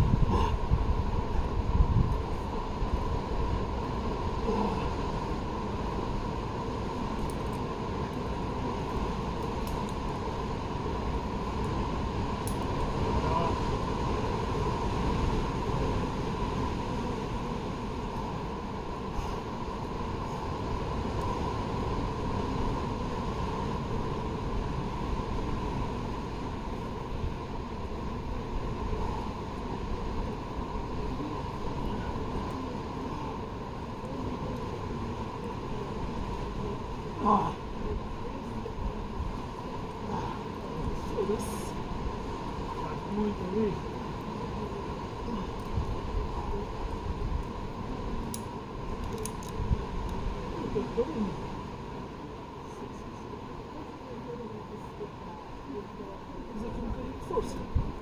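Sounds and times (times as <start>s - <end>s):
wind rumble on microphone: 0.0s - 58.0s
faint clicks: 12.4s - 12.9s, 48.2s - 50.2s.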